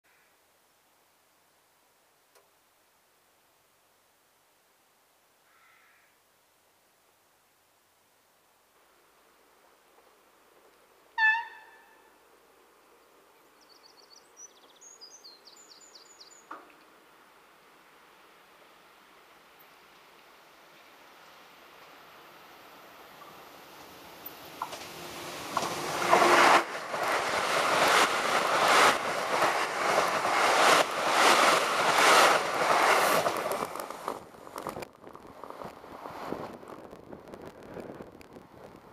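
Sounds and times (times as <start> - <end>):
faint background hiss: 0.1 - 27.0
train wheel and rail noise: 16.4 - 38.9.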